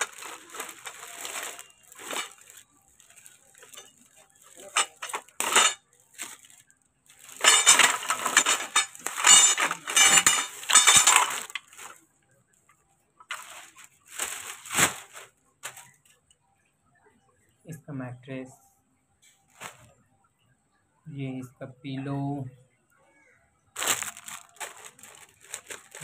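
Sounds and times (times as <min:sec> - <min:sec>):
plastic packaging crinkling: 0:00.0 - 0:12.0, 0:13.3 - 0:16.1, 0:19.5 - 0:19.9, 0:23.8 - 0:26.0
hard frame pieces clinking: 0:03.6 - 0:05.8, 0:07.2 - 0:11.9.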